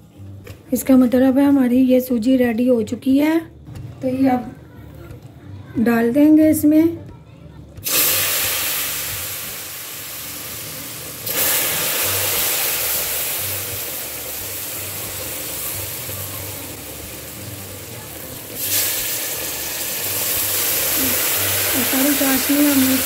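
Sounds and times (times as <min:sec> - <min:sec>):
syrup sizzling in hot pot: 0:07.8 - 0:23.0.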